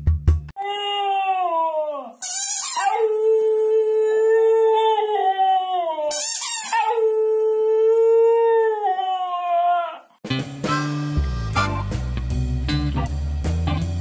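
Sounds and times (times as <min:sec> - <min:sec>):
dog howling: 0:02.8 - 0:10.1.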